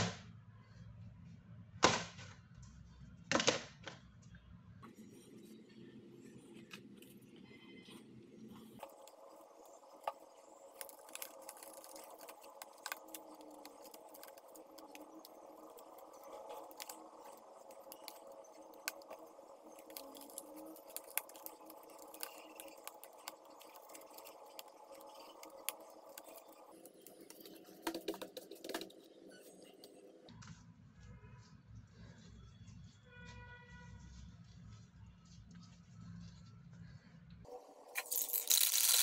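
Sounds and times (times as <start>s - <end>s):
gloves handling clicks and rustles: 8.5s - 30.6s, 38.0s - 39.0s.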